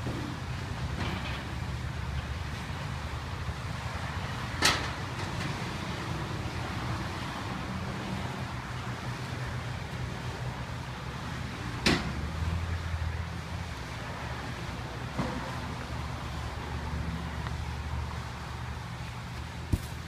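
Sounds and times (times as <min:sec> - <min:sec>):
cars passing: 0:00.0 - 0:20.0
low rumble of road vehicles: 0:00.0 - 0:20.0.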